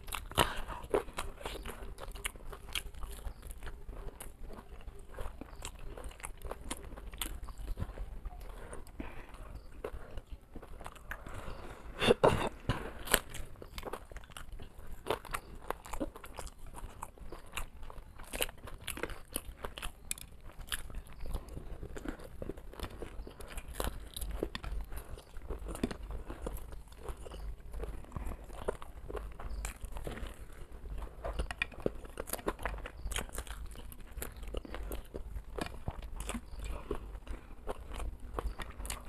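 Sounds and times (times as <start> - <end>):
mouth noises: 0.0 - 13.6
chewing and crunching: 0.0 - 39.0.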